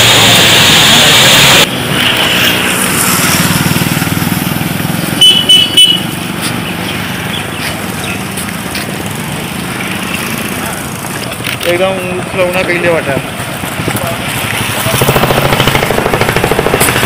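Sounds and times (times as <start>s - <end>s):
loud rushing noise: 0.0s - 5.3s
short high beeps: 5.2s - 6.1s
vehicle engine running: 13.2s - 17.0s.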